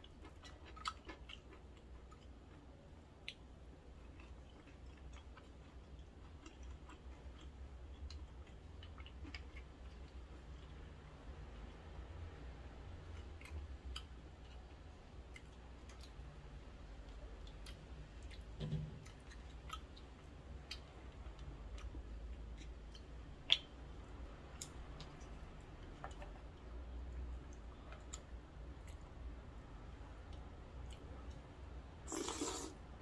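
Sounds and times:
chewing: 0.0s - 10.8s, 17.0s - 23.7s
low steady hum: 0.0s - 33.0s.

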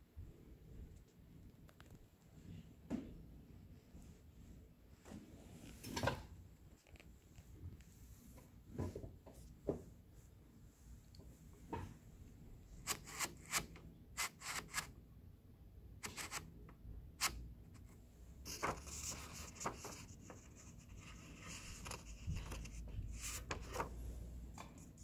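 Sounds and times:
paper rustling: 18.5s - 24.0s.

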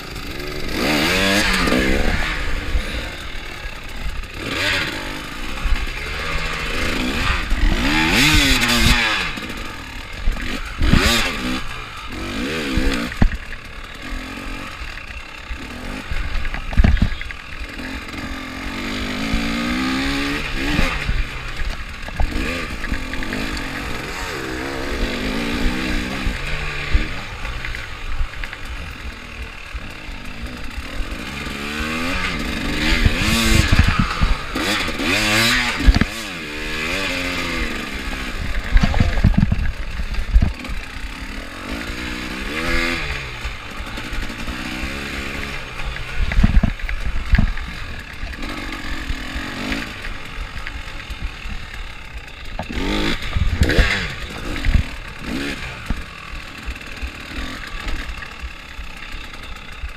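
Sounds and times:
dirt bike engine revving: 0.0s - 59.9s
bike knocking over bumps: 16.5s - 17.2s.

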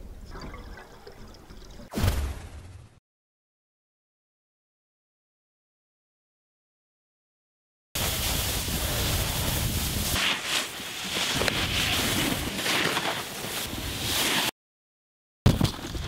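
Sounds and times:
wind rushing over microphone: 8.0s - 10.2s
snowboard carving through snow: 8.0s - 14.6s.

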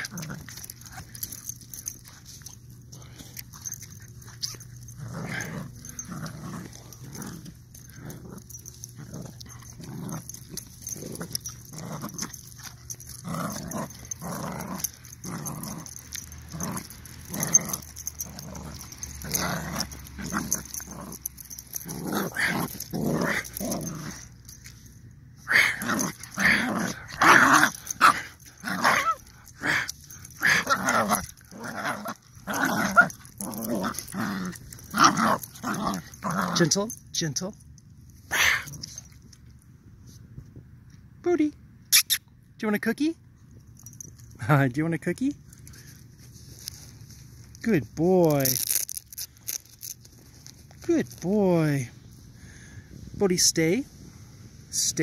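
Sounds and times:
dog growling in play: 0.0s - 24.7s, 25.4s - 36.8s, 38.3s - 39.2s.

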